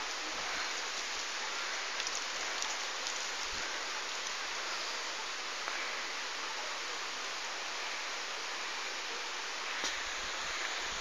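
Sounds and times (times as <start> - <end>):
water rushing: 0.0 - 11.0.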